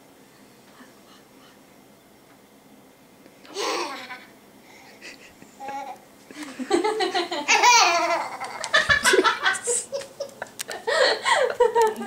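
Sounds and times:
baby laughing: 0:03.5 - 0:04.3, 0:05.6 - 0:06.0, 0:07.3 - 0:10.4.

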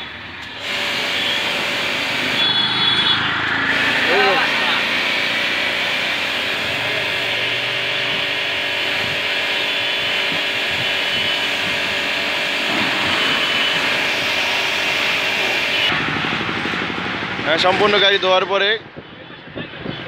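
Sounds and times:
pressure washer motor hum: 0:00.4 - 0:17.7
water jet hissing: 0:00.6 - 0:02.8, 0:03.6 - 0:15.9.

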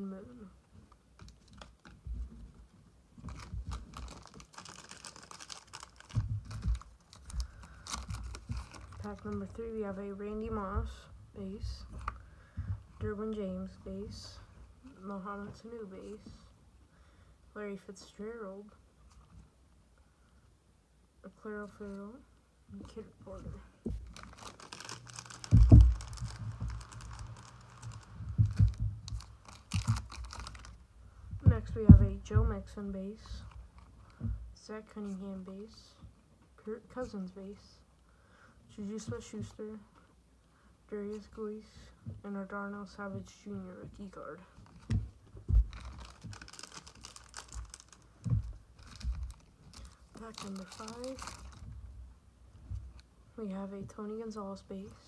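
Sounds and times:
dull thumps: 0:03.2 - 0:09.4, 0:23.8 - 0:32.8, 0:44.7 - 0:51.9
foil wrapper crinkling: 0:03.2 - 0:09.6, 0:23.9 - 0:30.8, 0:44.6 - 0:51.7.

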